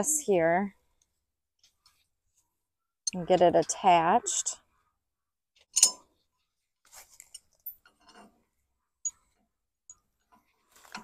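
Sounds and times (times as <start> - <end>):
metal pin and bar clinking: 5.7 - 6.0.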